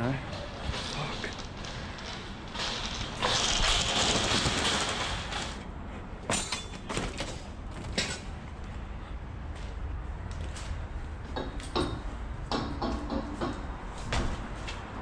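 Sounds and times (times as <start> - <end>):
footsteps: 9.5 - 11.7.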